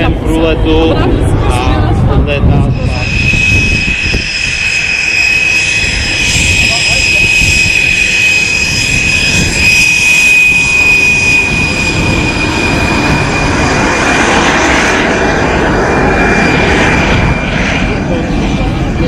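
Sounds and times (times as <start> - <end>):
jet engine whine and rumble: 0.0 - 19.0.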